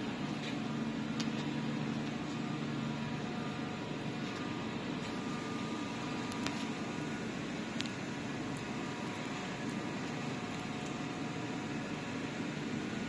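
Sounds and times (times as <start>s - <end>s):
machinery humming: 0.0s - 13.0s.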